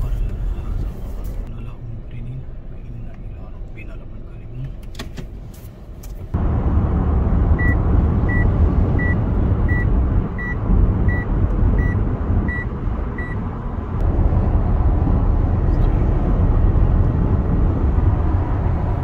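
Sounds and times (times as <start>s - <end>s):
car cabin road noise: 0.0s - 19.0s
high warning beep: 7.6s - 13.4s.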